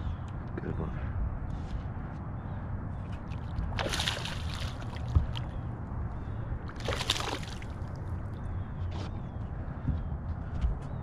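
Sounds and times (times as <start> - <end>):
fish splashing in water: 3.3 - 5.5, 6.7 - 8.1.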